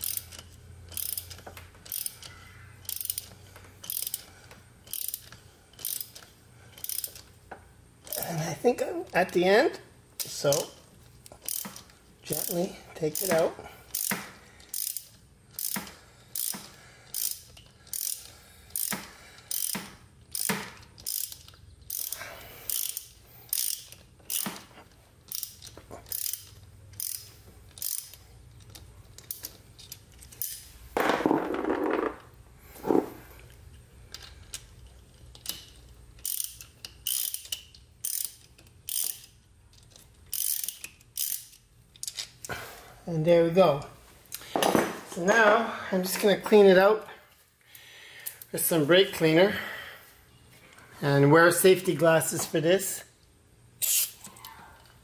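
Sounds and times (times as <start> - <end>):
hand ratchet clicking: 0.0 - 7.4, 10.2 - 30.7, 33.4 - 42.6, 53.8 - 54.9.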